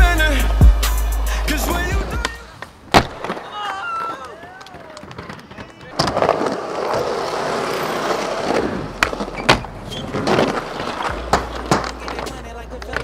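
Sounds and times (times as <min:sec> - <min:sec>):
skateboard wheels rolling on concrete: 0:00.1 - 0:13.0
skateboard clacking on ground: 0:02.2 - 0:07.4, 0:08.0 - 0:13.0.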